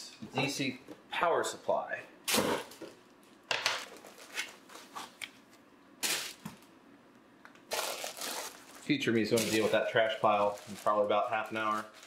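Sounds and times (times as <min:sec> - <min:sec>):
foam and plastic bag rustling: 0:06.0 - 0:06.6, 0:07.7 - 0:12.0.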